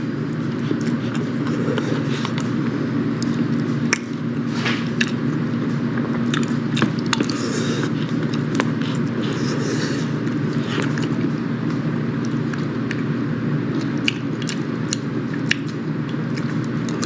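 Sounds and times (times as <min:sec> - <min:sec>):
person chewing: 0:00.0 - 0:17.0
steady low hum: 0:00.0 - 0:17.0.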